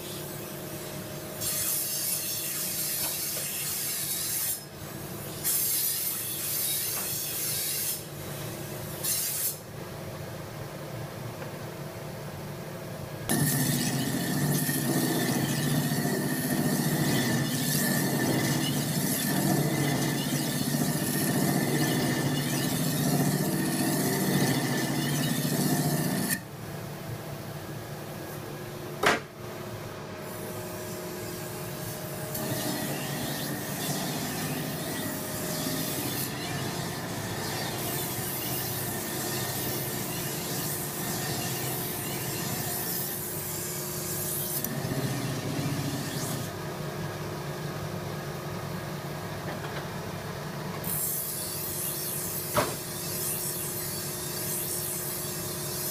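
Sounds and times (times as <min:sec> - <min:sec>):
grinding wheel whine: 0:13.3 - 0:26.4.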